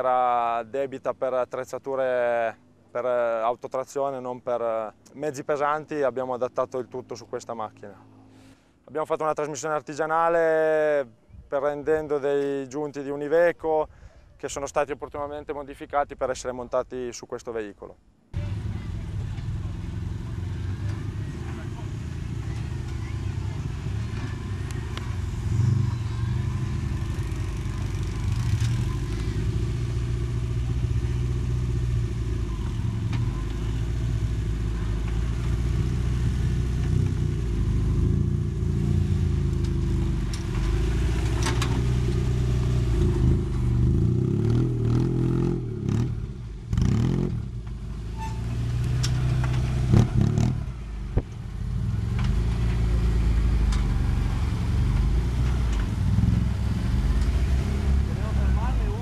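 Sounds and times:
engine running at low revs: 18.4s - 59.0s.

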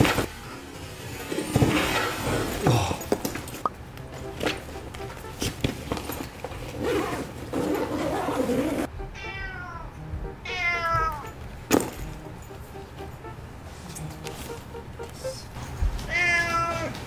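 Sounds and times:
fabric carrier rustling: 5.4s - 8.9s
cat meowing: 9.1s - 11.3s, 16.1s - 17.0s.

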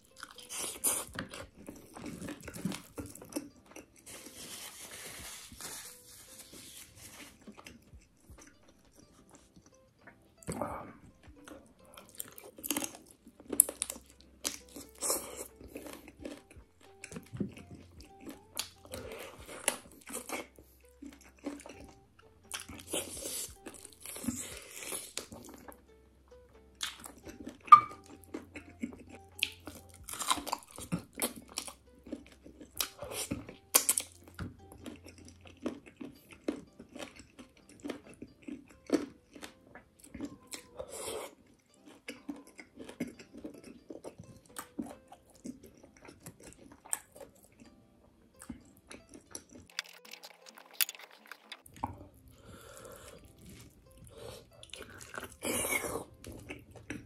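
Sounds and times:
wet chewing mouth sounds: 0.0s - 5.6s, 6.8s - 25.8s, 26.8s - 57.0s
food crunching: 0.0s - 57.0s
sharp clicks and crackles: 49.6s - 51.7s.

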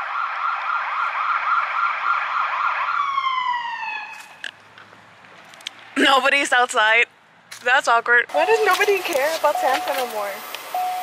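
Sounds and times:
siren yelping: 0.0s - 4.4s.

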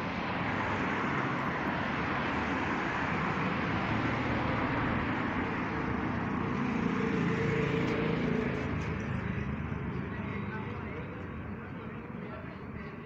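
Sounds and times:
car passing on road: 0.0s - 10.3s.

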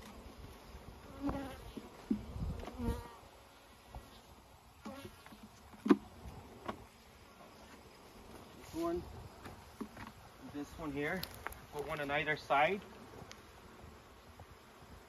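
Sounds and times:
bees buzzing: 0.5s - 5.2s.

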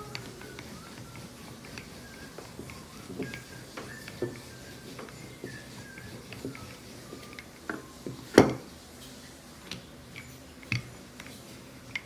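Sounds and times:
rolling pin rolling dough: 0.0s - 12.0s
wood knocking on glass: 7.7s - 8.7s.

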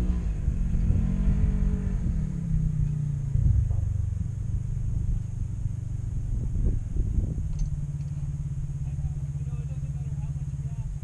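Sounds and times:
engine revving and idling: 0.0s - 11.0s.

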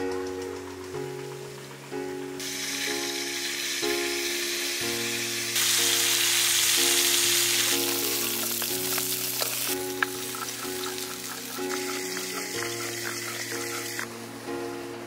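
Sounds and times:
background music: 0.0s - 15.0s
fish sizzling in hot oil: 2.4s - 14.1s.

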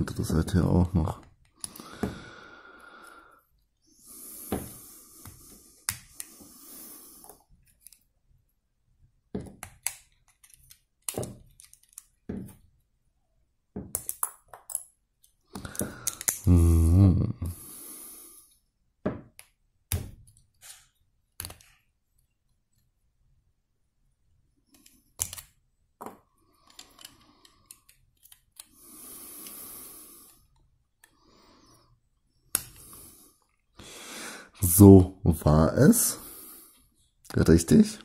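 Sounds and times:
plastic bricks clicking and snapping: 9.4s - 12.2s, 13.9s - 14.9s, 15.6s - 16.5s, 24.7s - 28.7s
low hum-like voice: 16.5s - 17.5s.

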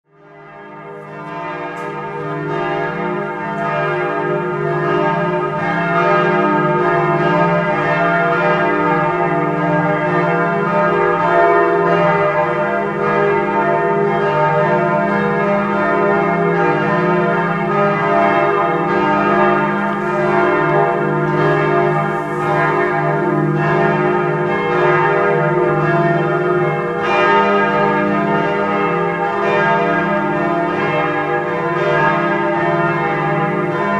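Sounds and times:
church bells ringing: 0.1s - 33.9s.

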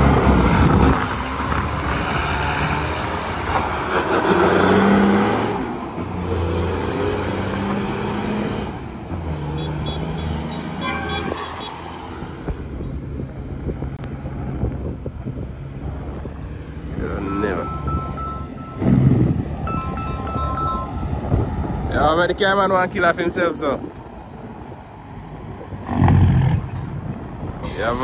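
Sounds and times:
truck diesel engine labouring: 0.0s - 23.8s
vehicle horn toot: 9.6s - 11.8s.

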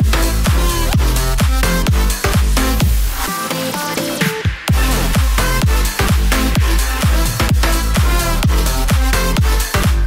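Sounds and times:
steady kick drum: 0.0s - 3.3s, 4.2s - 10.0s
electronic dance music: 0.0s - 10.0s.

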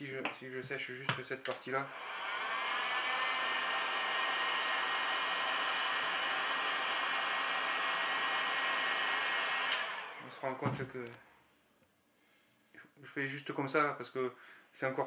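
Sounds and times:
hot-air blower whining: 1.8s - 10.8s.

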